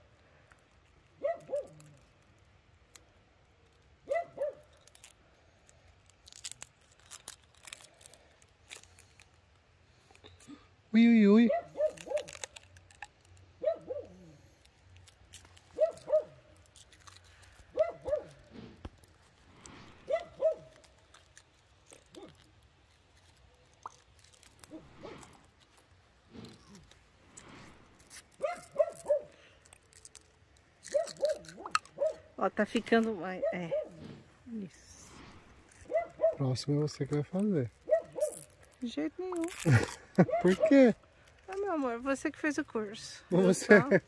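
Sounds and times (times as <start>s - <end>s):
light clicks and crinkles: 0.0s - 10.7s, 11.5s - 43.9s
small dog yipping: 1.2s - 1.8s, 4.1s - 4.7s, 11.4s - 12.4s, 13.6s - 14.4s, 15.8s - 16.4s, 17.7s - 18.4s, 20.1s - 20.8s, 28.4s - 29.4s, 30.8s - 32.3s, 33.4s - 34.1s, 35.9s - 36.4s, 37.9s - 38.5s, 40.2s - 40.8s.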